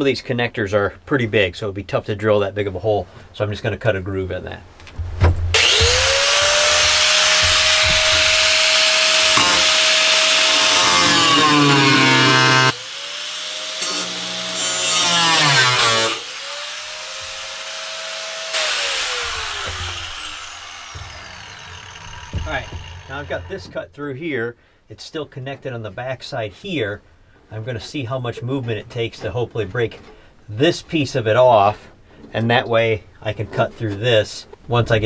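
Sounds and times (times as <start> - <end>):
cutoff wheel grinding sheet steel: 5.6 - 23.7.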